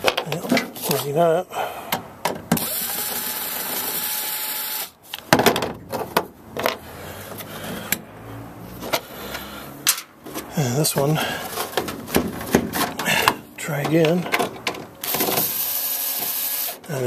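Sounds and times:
cordless drill running: 2.6s - 5.0s, 15.0s - 16.8s
sharp clicks and knocks: 11.6s - 15.5s.

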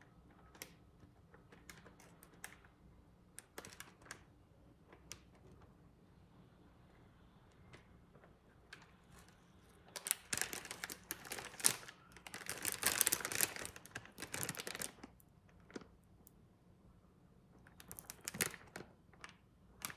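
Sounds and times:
plastic packet crinkling: 3.3s - 4.3s, 8.2s - 16.0s, 17.6s - 19.9s.

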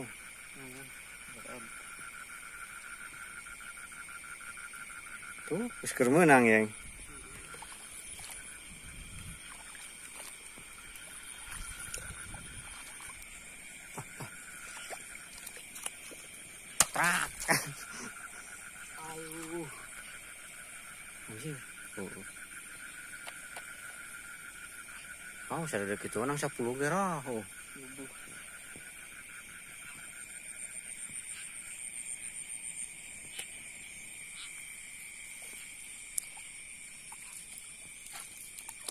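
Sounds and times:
night insects trilling: 0.0s - 38.9s
water sloshing around wading legs: 6.0s - 20.2s, 35.2s - 38.9s.

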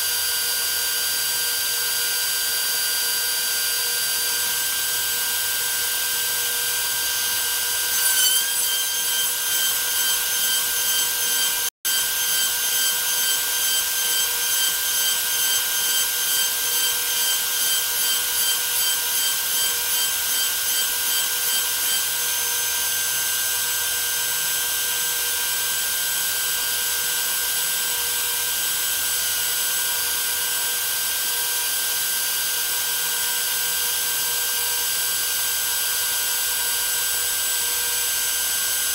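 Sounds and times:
router motor whine: 0.0s - 38.9s
end mill cutting metal: 4.2s - 23.0s.

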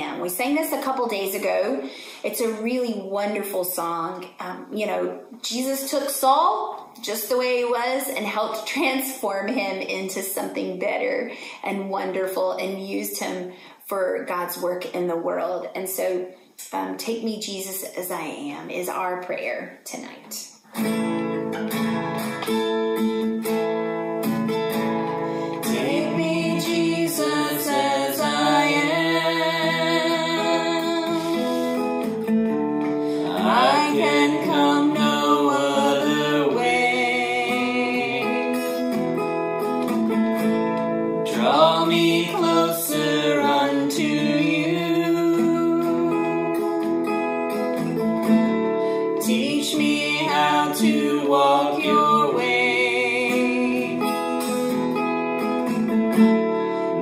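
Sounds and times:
acoustic guitar strumming: 20.7s - 57.0s
woman and man singing: 25.5s - 31.9s, 33.1s - 38.8s, 41.3s - 46.6s, 49.2s - 54.3s.

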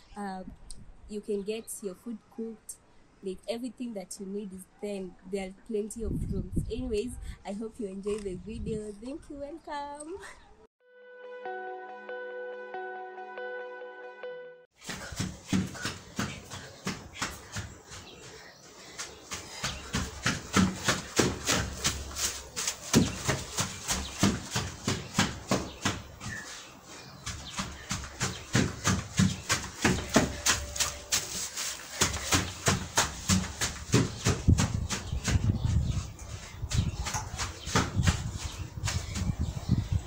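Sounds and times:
quick taps and thumps: 14.8s - 18.0s, 19.0s - 26.5s, 27.2s - 39.5s.

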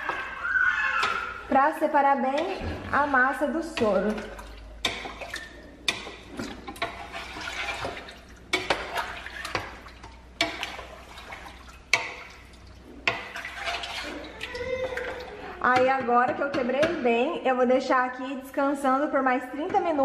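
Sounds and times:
curd sloshing in whey: 0.0s - 15.8s
wooden spoon knocking pot: 1.0s - 7.1s, 11.9s - 14.1s, 14.8s - 17.2s.

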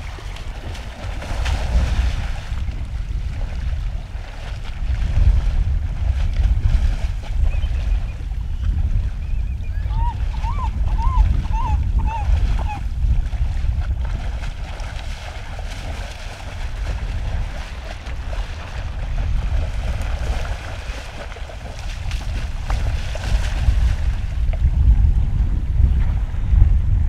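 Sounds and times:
creek water rushing: 0.0s - 2.9s, 9.9s - 24.2s
bear splashing through water: 0.0s - 7.5s, 11.2s - 24.7s
wind buffeting microphone: 0.0s - 27.0s
bird calling: 9.2s - 12.8s.

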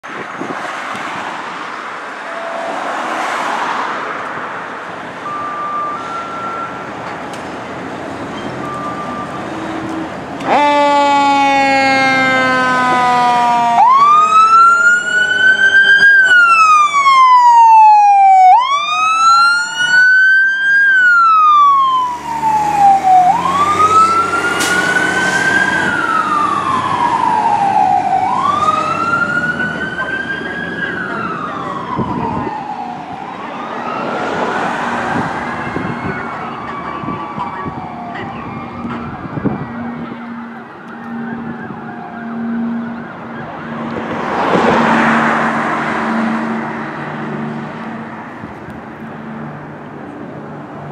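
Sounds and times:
siren wail rising and falling: 2.2s - 7.1s, 8.7s - 49.5s
fire truck horn blast: 10.4s - 16.4s.

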